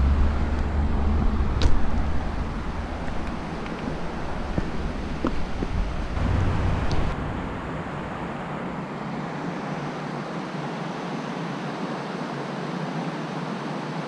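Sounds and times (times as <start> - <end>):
wind buffeting microphone: 0.0 - 9.6
river water rushing over rapids: 0.0 - 14.0.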